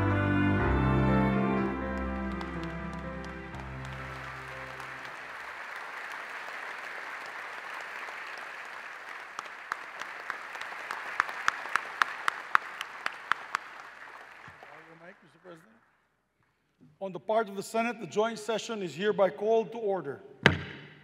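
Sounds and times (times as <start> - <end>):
music: 0.0 - 5.1
large audience applauding: 0.0 - 15.8.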